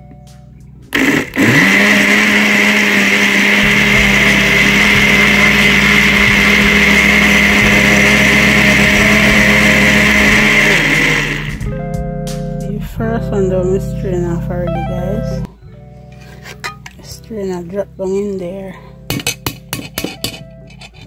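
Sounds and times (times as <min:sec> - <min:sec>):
blender motor whining: 0:00.9 - 0:11.7.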